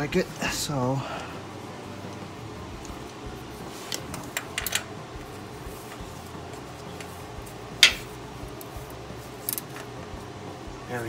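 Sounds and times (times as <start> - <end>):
oil filter wrench clicking: 4.2 - 4.9.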